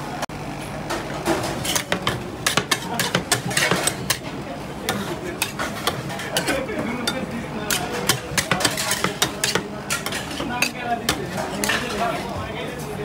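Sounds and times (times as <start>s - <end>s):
metal spatulas clacking on steel: 1.6s - 4.3s, 4.9s - 12.1s.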